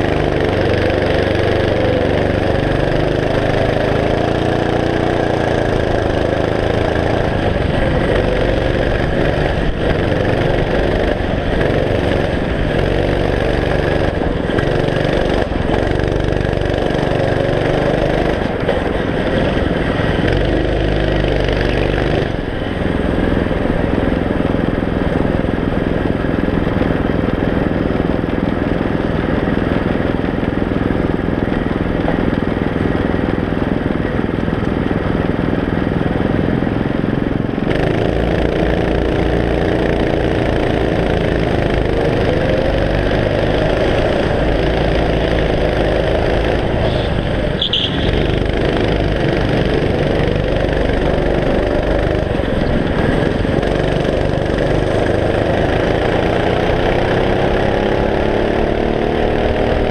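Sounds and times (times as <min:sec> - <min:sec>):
go-kart engine: 0:00.0 - 0:59.9
brief high squeak: 0:46.9 - 0:48.3.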